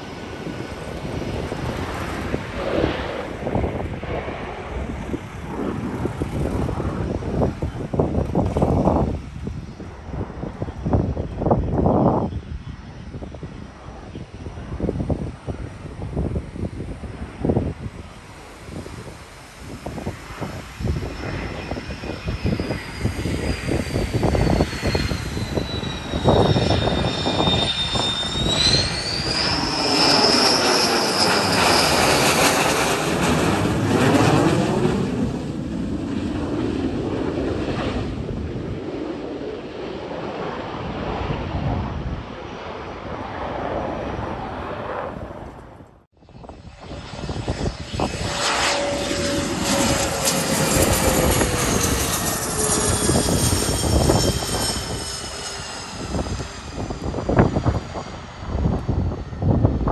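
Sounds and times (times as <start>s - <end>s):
business jet engines landing: 0.0s - 59.9s
fighter jet engine whine: 0.0s - 59.9s.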